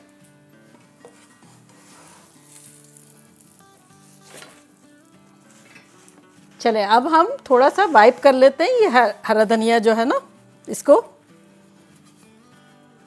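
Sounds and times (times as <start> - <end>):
soft background music: 0.0 - 13.0
spatula scraping a plate: 1.0 - 3.1, 5.5 - 6.3
faint food sizzling: 1.7 - 10.0.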